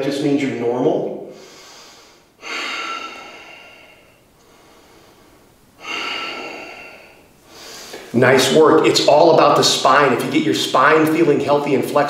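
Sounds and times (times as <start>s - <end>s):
man breathing: 1.3s - 8.2s.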